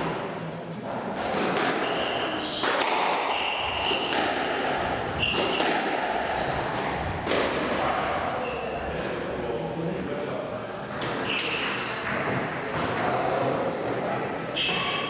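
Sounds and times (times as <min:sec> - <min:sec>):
squash ball knocks: 0:02.6 - 0:07.7.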